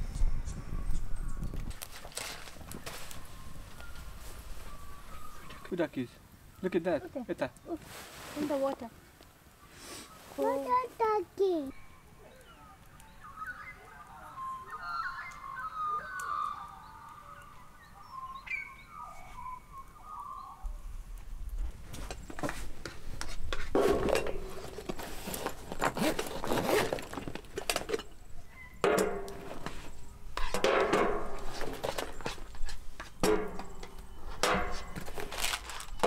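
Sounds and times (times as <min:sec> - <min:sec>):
pots and utensils clinking: 0:23.5 - 0:25.2, 0:27.3 - 0:28.2
bag rustling: 0:23.9 - 0:27.6, 0:34.8 - 0:36.0.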